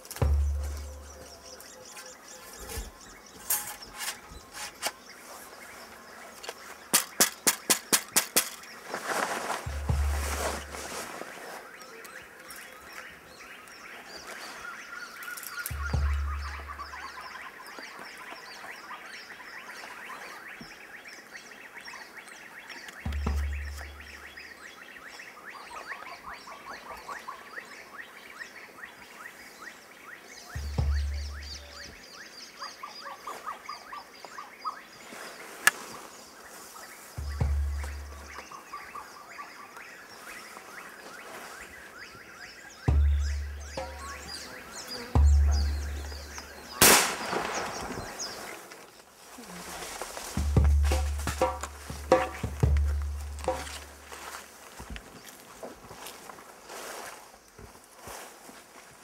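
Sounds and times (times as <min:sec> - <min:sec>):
rapid chirping calls: 0:14.8 - 0:20.5, 0:22.7 - 0:27.8, 0:30.4 - 0:34.9, 0:36.5 - 0:40.6, 0:41.6 - 0:48.6.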